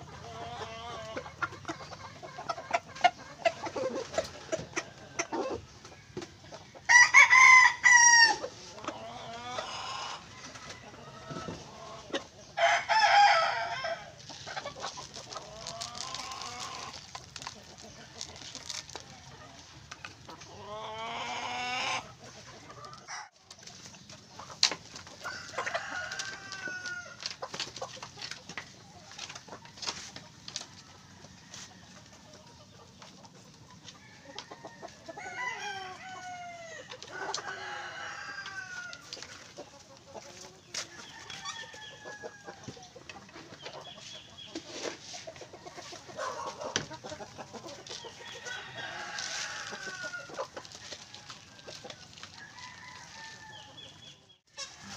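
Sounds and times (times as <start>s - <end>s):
chickens clucking: 0.0s - 54.9s
beaks pecking feed: 14.2s - 31.0s, 37.1s - 54.9s.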